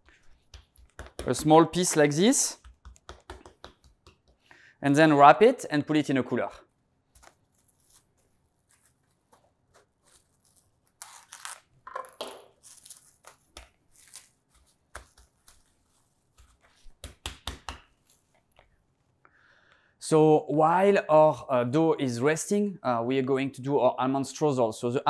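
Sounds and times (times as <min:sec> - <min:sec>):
cling wrap rustling and crinkling: 0:07.1 - 0:11.8, 0:12.5 - 0:17.0, 0:17.9 - 0:18.7.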